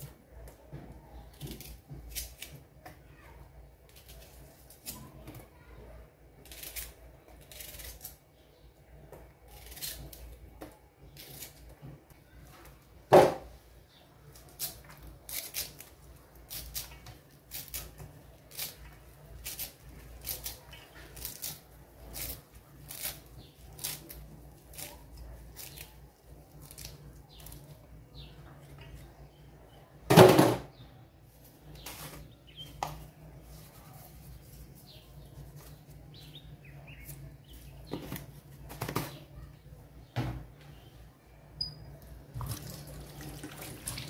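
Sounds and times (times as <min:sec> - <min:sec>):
hands rustling fresh greens: 0:31.2 - 0:38.8.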